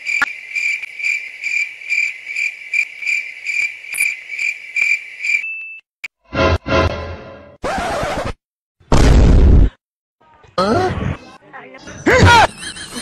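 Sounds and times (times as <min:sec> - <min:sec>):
cricket chirping: 0:00.0 - 0:05.6.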